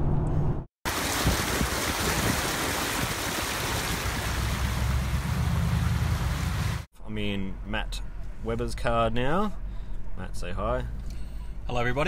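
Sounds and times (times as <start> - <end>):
low rumble: 4.0 - 6.9.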